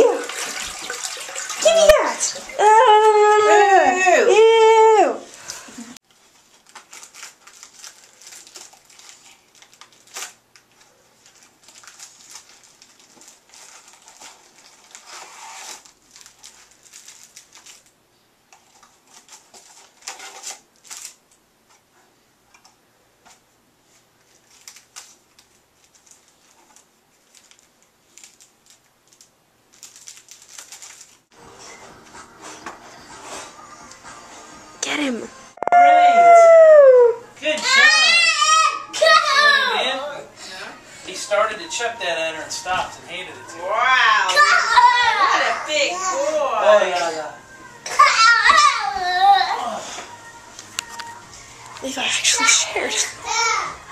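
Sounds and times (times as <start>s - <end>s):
rustling card and paper: 6.1s - 21.3s, 23.3s - 31.8s.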